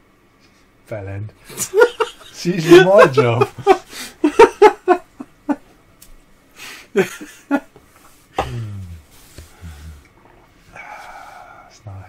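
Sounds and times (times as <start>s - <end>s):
men stifling laughter: 1.5s - 5.7s, 6.9s - 7.7s.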